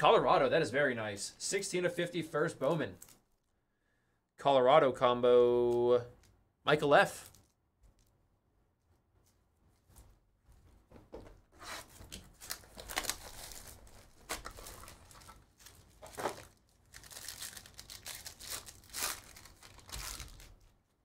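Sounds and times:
plastic and foil crinkling and tearing: 0:11.8 - 0:20.9.

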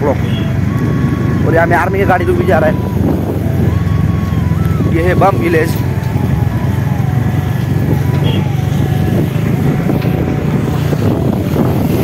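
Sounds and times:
truck engines rumbling: 0:00.0 - 0:12.0
motor scooter running: 0:02.6 - 0:12.0.

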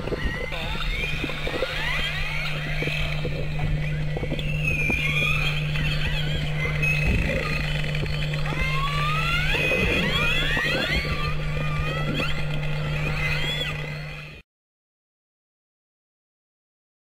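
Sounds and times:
low hum: 0:00.0 - 0:14.4
killer whales whistling underwater: 0:00.1 - 0:07.8, 0:08.5 - 0:14.2.

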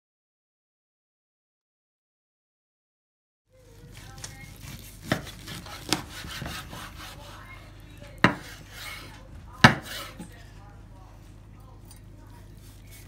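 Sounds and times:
knife sawing through meat: 0:04.1 - 0:10.3, 0:12.5 - 0:13.0
knife knocking on cutting board: 0:08.2 - 0:08.6, 0:09.6 - 0:10.3.

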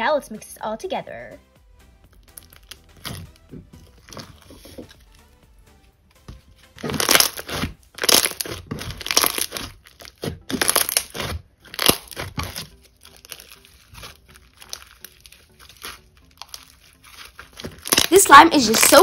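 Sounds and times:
slime crunching and squishing: 0:02.1 - 0:05.2, 0:06.6 - 0:19.0.

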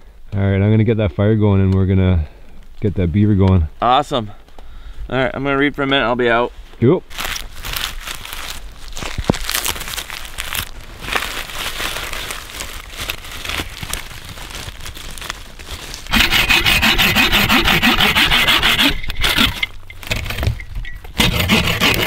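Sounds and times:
bark and twigs rustling: 0:07.1 - 0:22.0
hand saw cutting wood: 0:16.1 - 0:20.5, 0:21.2 - 0:22.0.

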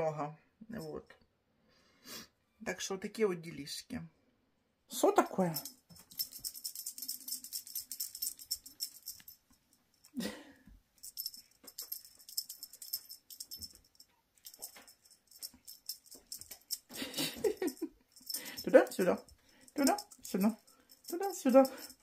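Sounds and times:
cat toy jingling rattle: 0:05.4 - 0:10.2, 0:11.0 - 0:22.0.

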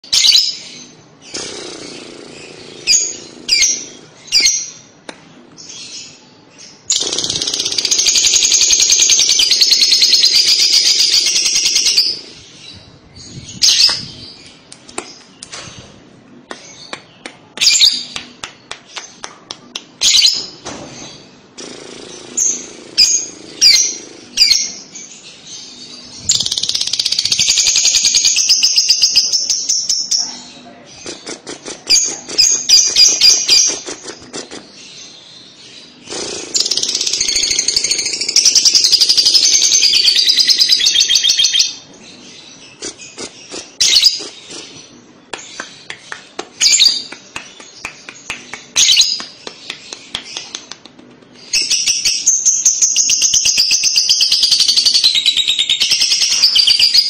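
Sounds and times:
bird rapid chattering: 0:01.2 - 0:04.0, 0:06.9 - 0:12.3, 0:30.9 - 0:34.8, 0:42.6 - 0:57.0
bird high chirps: 0:51.4 - 0:57.0.

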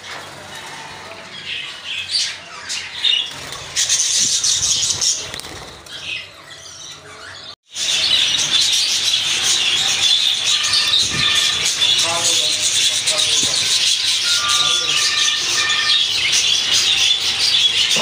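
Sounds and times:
budgerigars squawking: 0:07.0 - 0:18.0.

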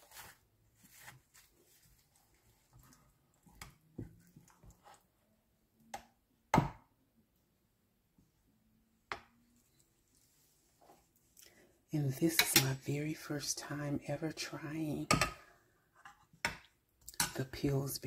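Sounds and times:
spoon scraping through pastry: 0:00.0 - 0:03.6.

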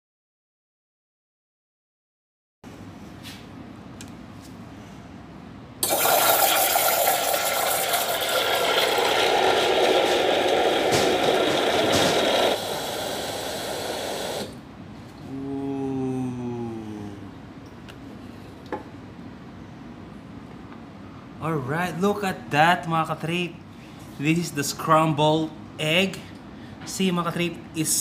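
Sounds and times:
loud steam hiss: 0:05.8 - 0:14.6.

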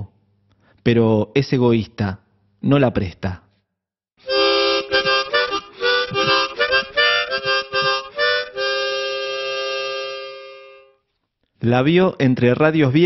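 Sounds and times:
reed wind instrument melody: 0:04.2 - 0:11.0.

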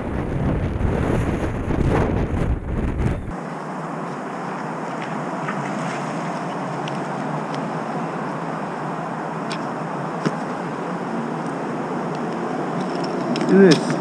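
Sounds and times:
wind rushing: 0:00.0 - 0:03.4
motorcycle road noise: 0:00.0 - 0:14.0.

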